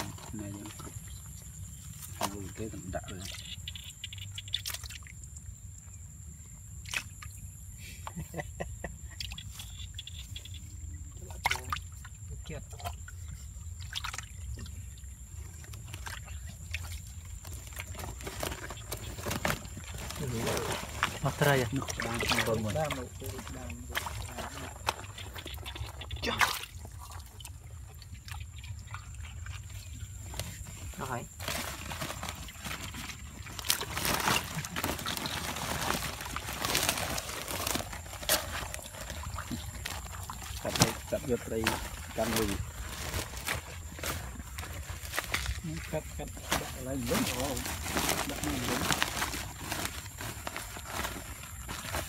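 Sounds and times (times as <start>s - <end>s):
hands sloshing through muddy water: 0.0s - 5.2s, 8.1s - 52.0s
small splashes: 0.0s - 5.5s, 6.7s - 7.5s, 9.1s - 52.0s
plastic sack crinkling: 17.4s - 26.2s, 30.3s - 52.0s.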